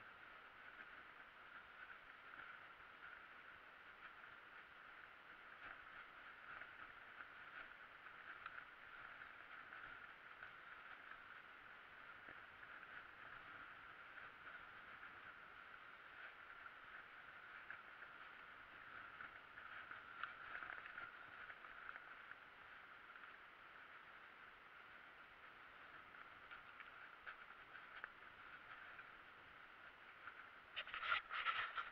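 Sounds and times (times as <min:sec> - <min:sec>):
bike rolling on dirt track: 0:00.0 - 0:31.9
bike clicks and rattles: 0:30.3 - 0:31.9.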